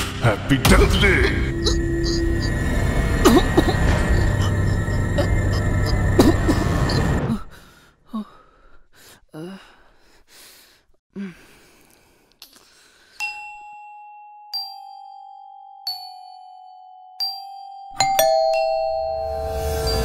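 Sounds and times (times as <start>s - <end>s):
loud music: 0.0s - 4.4s
bell-like chime: 13.2s - 20.0s.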